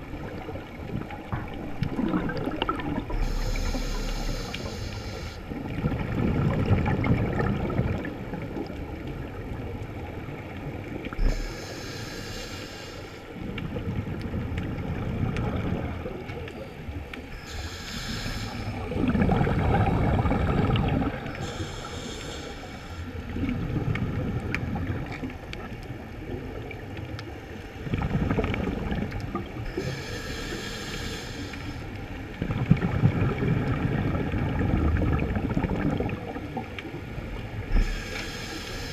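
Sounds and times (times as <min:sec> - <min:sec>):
bubbling exhaled air: 0:00.0 - 0:08.2, 0:17.3 - 0:25.1, 0:32.4 - 0:36.6
regulator hissing inhale: 0:03.1 - 0:05.5, 0:11.2 - 0:13.3, 0:17.3 - 0:19.0, 0:21.3 - 0:23.2, 0:29.7 - 0:32.0, 0:37.7 - 0:38.9.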